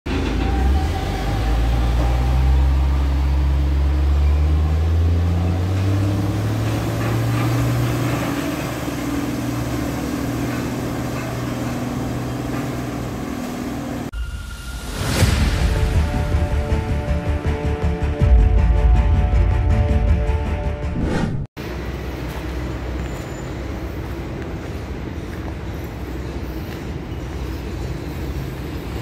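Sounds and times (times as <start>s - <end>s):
diesel truck engine running: 0.1s - 14.1s.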